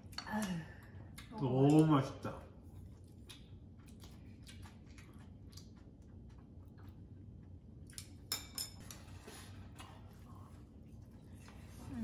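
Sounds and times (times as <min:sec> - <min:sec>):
chopsticks clicking against dishes: 0:01.2 - 0:02.0.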